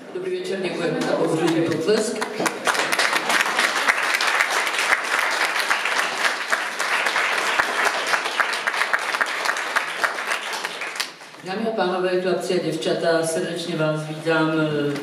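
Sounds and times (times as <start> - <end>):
audience applauding: 1.2 - 11.4.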